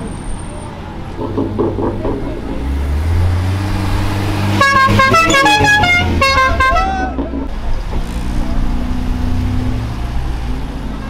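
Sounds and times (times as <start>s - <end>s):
musical car horn tune: 4.5s - 7.2s.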